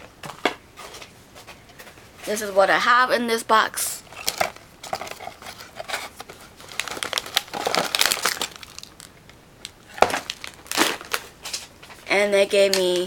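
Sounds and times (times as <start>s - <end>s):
plastic bag rustling: 4.0s - 13.0s.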